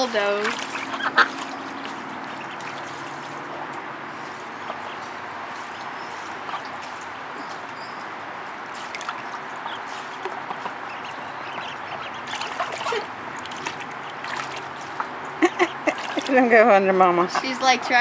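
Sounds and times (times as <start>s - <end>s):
water trickling and splashing: 0.0s - 18.0s
duck calls: 0.7s - 3.7s, 4.3s - 5.1s, 9.6s - 14.2s.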